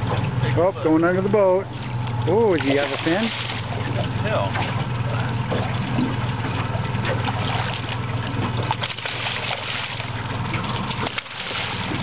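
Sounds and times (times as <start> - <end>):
steady low hum: 0.0 - 12.0
water splashing against a boat: 0.0 - 12.0.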